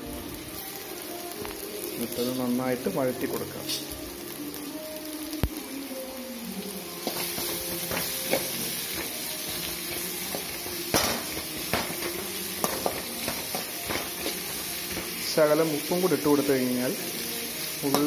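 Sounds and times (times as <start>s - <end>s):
onions sizzling in hot oil: 0.0s - 18.0s.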